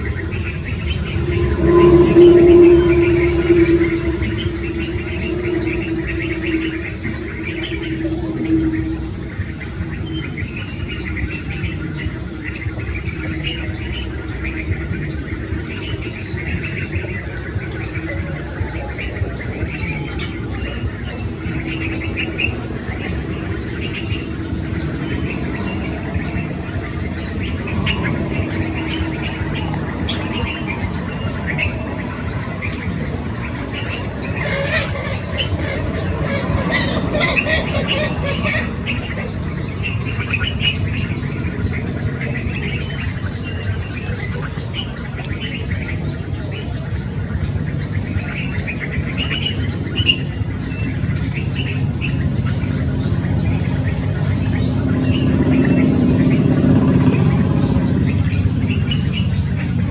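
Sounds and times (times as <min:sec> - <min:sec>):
bird chirps: 0:00.0 - 0:56.6
insects trilling: 0:00.0 - 0:59.8
low hum: 0:00.0 - 0:59.9
low rumble: 0:00.0 - 0:59.9.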